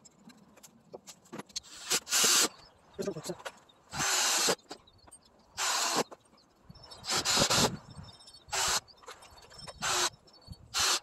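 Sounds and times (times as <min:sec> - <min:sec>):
cordless drill driving screws: 0:04.0 - 0:04.6, 0:05.6 - 0:06.1, 0:07.0 - 0:07.8, 0:08.5 - 0:08.8, 0:10.8 - 0:11.0.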